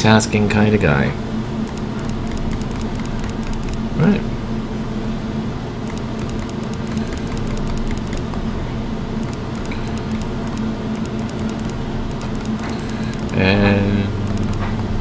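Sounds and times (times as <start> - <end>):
laundry machine humming: 1.2 - 15.0
faint high ticks: 1.7 - 3.8, 5.9 - 8.4, 9.2 - 13.4, 14.2 - 14.7.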